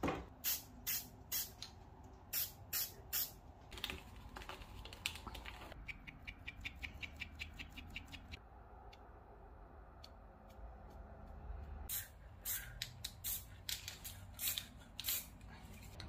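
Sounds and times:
spray paint can hissing: 0:00.4 - 0:01.6, 0:02.3 - 0:03.4, 0:11.9 - 0:15.4.

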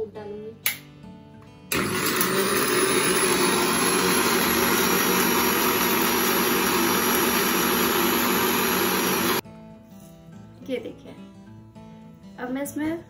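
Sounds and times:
blender motor whirring: 0:01.7 - 0:09.4.

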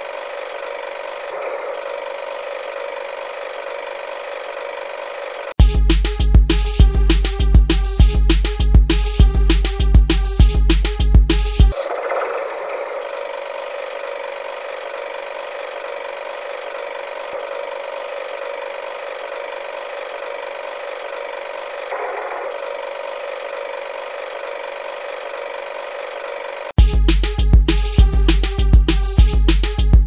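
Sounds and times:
toy motor whirring: 0:00.0 - 0:05.6, 0:12.8 - 0:26.8.

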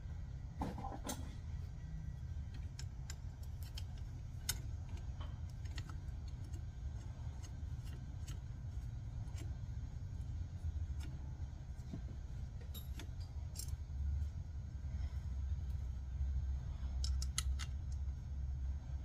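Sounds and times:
steady low rumble: 0:00.0 - 0:19.0
metallic clicks of hand tools: 0:12.7 - 0:13.8.

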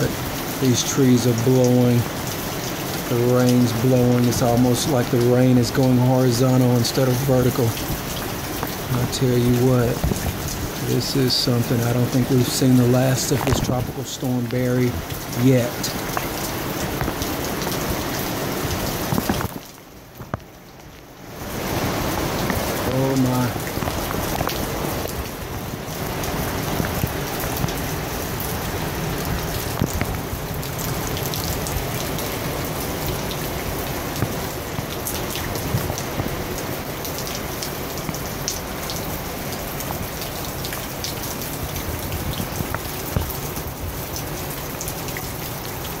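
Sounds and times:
heavy rain hissing: 0:00.0 - 0:46.0
raindrops ticking: 0:00.0 - 0:46.0
wind rumbling on microphone: 0:07.8 - 0:11.2, 0:13.2 - 0:20.5, 0:21.3 - 0:38.8, 0:39.8 - 0:44.4.

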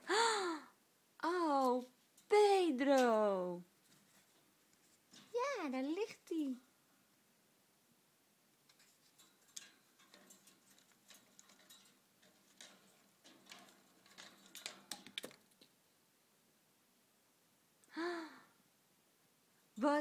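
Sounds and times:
budgie moving in cage: 0:03.8 - 0:06.4, 0:08.6 - 0:15.9.

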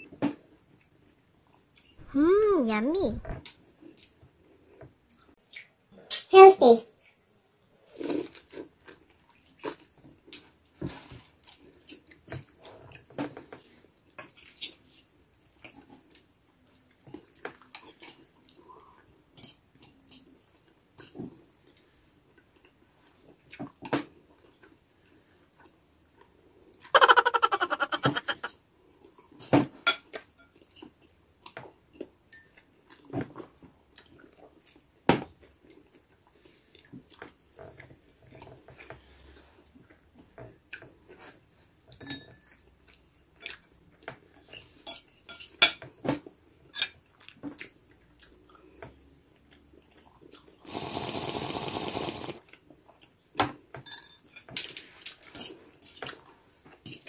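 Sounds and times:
slurping drink: 0:50.6 - 0:52.4
slurping noodles: 0:50.6 - 0:52.4
fork clinking on plates: 0:53.8 - 0:54.4.

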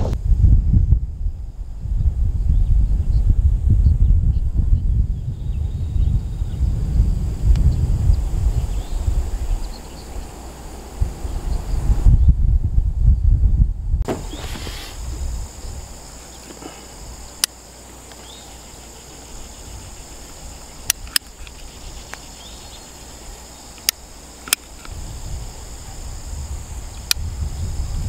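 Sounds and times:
low rumble: 0:00.0 - 0:14.1
insects singing: 0:04.2 - 0:12.2, 0:14.1 - 0:28.0
sharp clicks: 0:20.8 - 0:22.2, 0:23.7 - 0:25.0.

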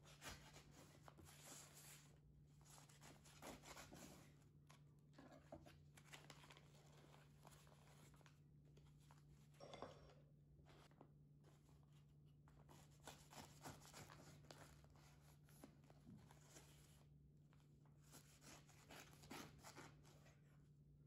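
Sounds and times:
paper rustling: 0:05.1 - 0:09.4
knife sawing through wrapped sandwich: 0:18.2 - 0:20.2.

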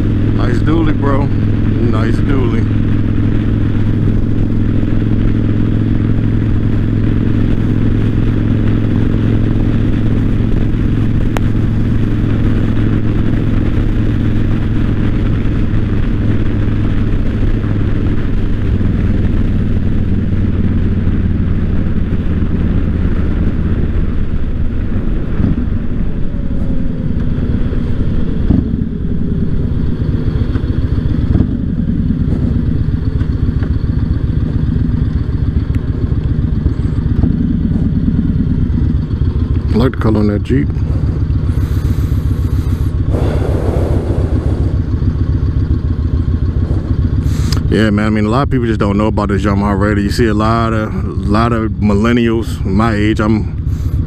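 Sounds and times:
motorcycle engine running: 0:00.0 - 0:54.0
wind noise on microphone: 0:40.8 - 0:47.8.

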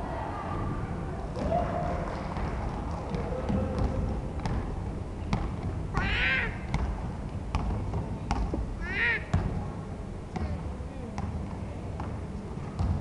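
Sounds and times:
basketball dribbling on hardwood: 0:06.7 - 0:08.7.

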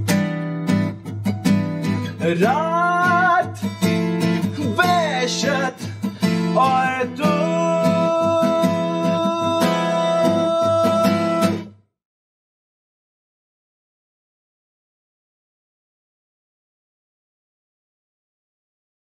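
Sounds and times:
strummed acoustic guitar: 0:00.0 - 0:11.8
man singing: 0:02.0 - 0:11.7.

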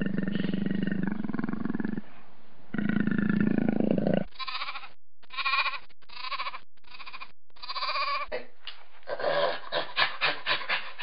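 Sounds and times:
leopard growling: 0:00.0 - 0:02.1, 0:02.7 - 0:04.3
lamb bleating: 0:04.3 - 0:08.3.

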